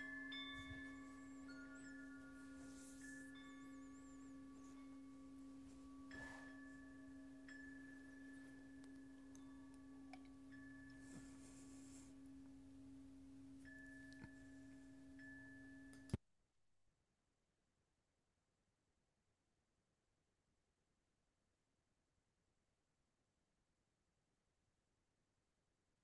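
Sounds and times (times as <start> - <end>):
faint higher tone: 0.0 - 16.2
steady pure ringing tone: 0.0 - 16.2
click: 15.9 - 16.2.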